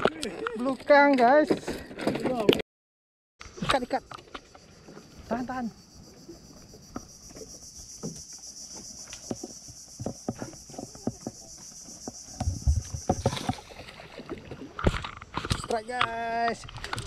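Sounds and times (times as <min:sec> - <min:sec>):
high-pitched insect drone: 0:03.4 - 0:13.8
dull low thumps: 0:12.1 - 0:13.2.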